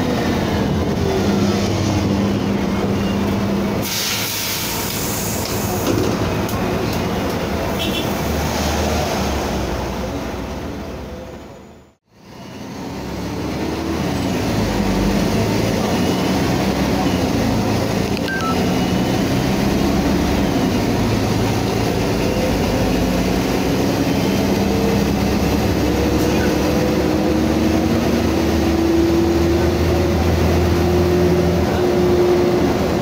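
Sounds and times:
diesel bus engine running: 9.8s - 33.0s.

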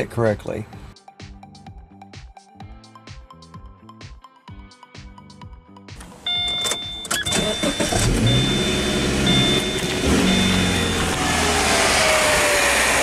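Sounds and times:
music: 0.0s - 7.8s
car engine running: 6.0s - 13.0s
high beeps: 6.2s - 11.2s.

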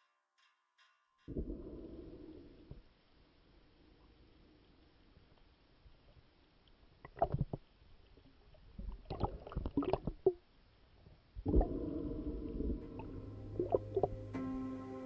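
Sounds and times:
underwater clicks and gurgles: 1.3s - 14.3s
sustained music chord: 12.8s - 15.0s.

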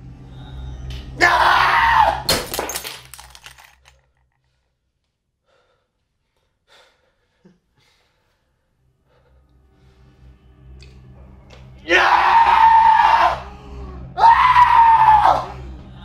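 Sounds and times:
low hum: 0.0s - 1.3s, 8.7s - 11.9s
man screaming: 1.2s - 2.3s, 11.8s - 13.5s, 14.2s - 15.6s.

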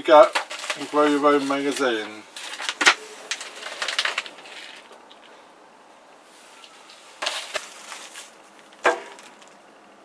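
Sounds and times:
glossy magazines rustling: 0.2s - 5.4s, 6.4s - 9.6s.

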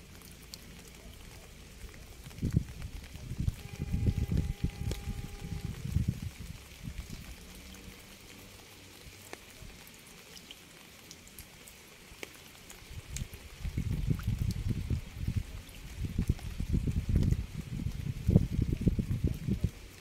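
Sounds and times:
rain falling: 0.0s - 20.0s
raindrop ticks: 0.0s - 20.0s
uneven low rumble: 1.3s - 7.5s.

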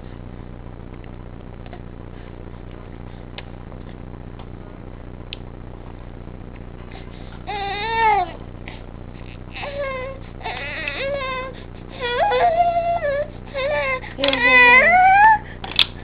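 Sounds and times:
low background hum and hiss: 0.0s - 16.0s.

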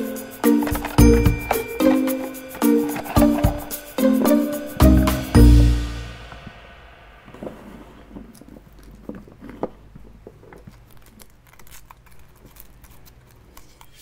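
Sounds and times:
foil wrapper crinkling: 10.5s - 14.0s.

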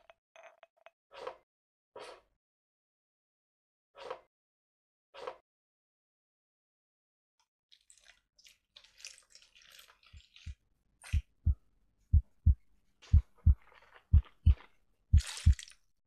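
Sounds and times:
heartbeat thuds: 11.1s - 15.6s.

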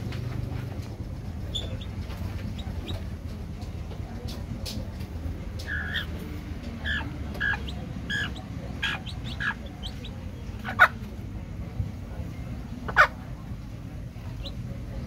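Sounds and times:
chicks peeping: 0.1s - 11.3s, 14.2s - 15.0s.

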